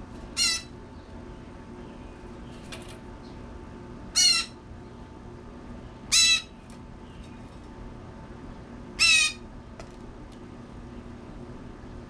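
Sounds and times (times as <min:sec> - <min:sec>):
blue jay calling: 0:00.3 - 0:02.6, 0:04.1 - 0:05.0, 0:05.8 - 0:07.4, 0:09.0 - 0:09.5.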